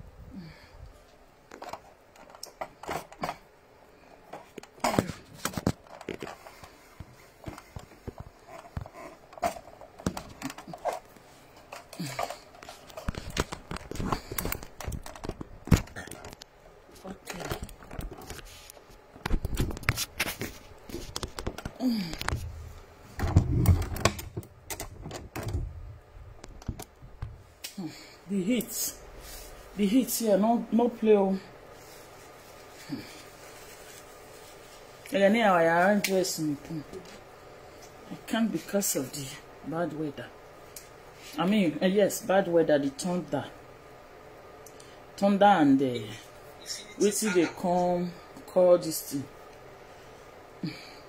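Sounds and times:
phone handling knocks and rustling: 7.0 - 11.1.

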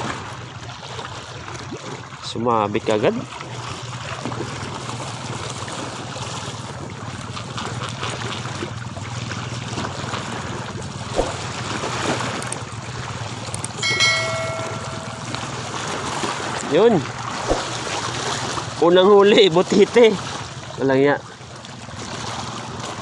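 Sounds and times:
sea water lapping and sloshing: 0.0 - 23.0
short electronic chime: 13.8 - 15.7.

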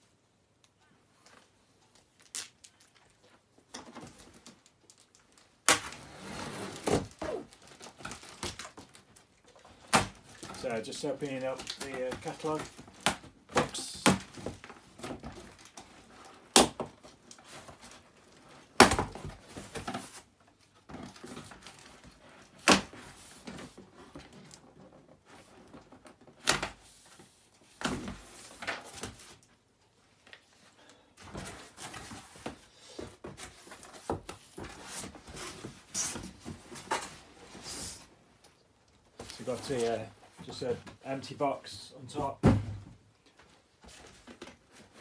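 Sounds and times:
cardboard rustling: 6.0 - 41.4
cardboard box knocks and thuds: 42.4 - 43.0.

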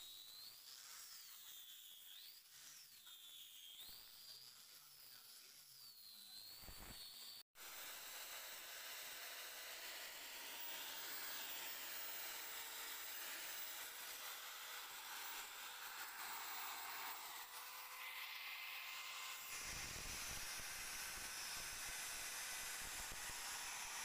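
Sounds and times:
angle grinder whine: 13.0 - 24.0
drill sanding wood: 19.4 - 24.0.

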